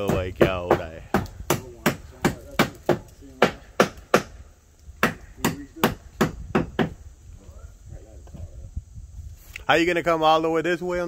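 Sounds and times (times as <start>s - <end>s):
hammer blows on wooden boards: 0.0s - 7.0s.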